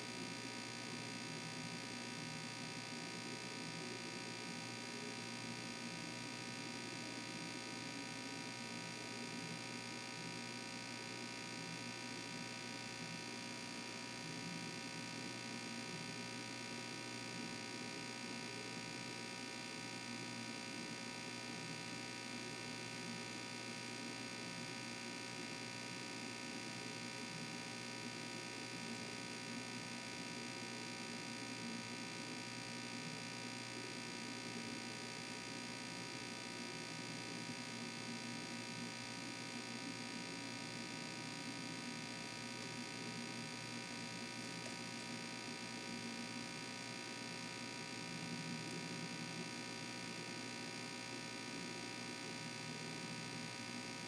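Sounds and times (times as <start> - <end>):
steady electrical hum and hiss: 0.0 - 54.0.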